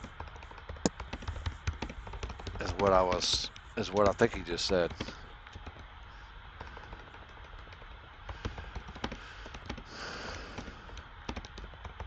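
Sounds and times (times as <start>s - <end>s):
keyboard key clicks: 0.0s - 5.8s, 10.6s - 12.0s.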